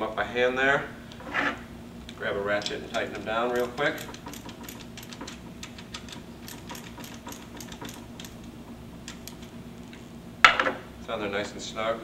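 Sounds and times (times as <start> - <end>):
hand ratchet clicking: 2.6 - 9.5.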